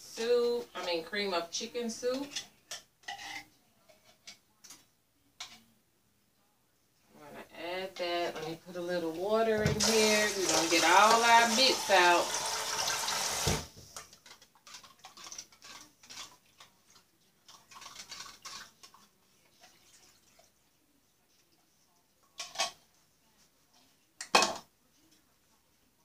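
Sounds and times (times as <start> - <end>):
utensil scraping a pan: 2.1 - 4.3, 14.2 - 16.4
tap water running: 8.4 - 20.5.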